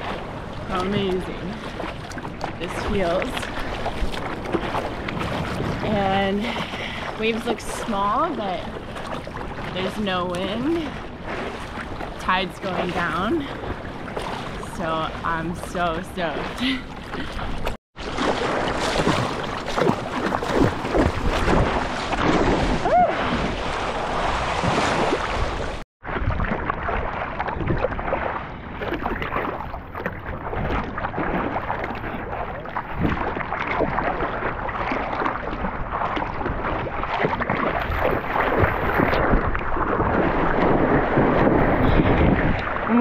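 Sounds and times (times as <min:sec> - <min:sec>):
wind on microphone: 0:00.0 - 0:08.7, 0:09.6 - 0:43.0
seawater moving: 0:00.0 - 0:43.0.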